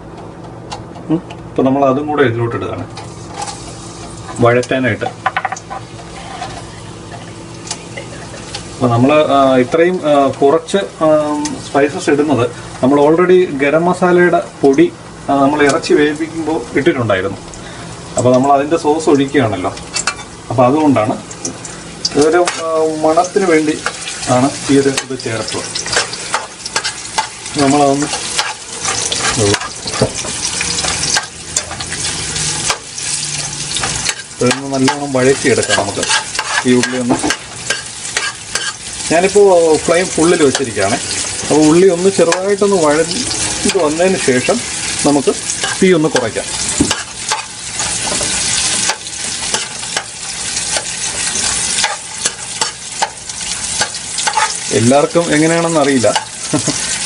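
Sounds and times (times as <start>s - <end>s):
onions sizzling in hot oil: 2.9s - 57.0s
metal ladle scraping pot: 35.6s - 38.8s.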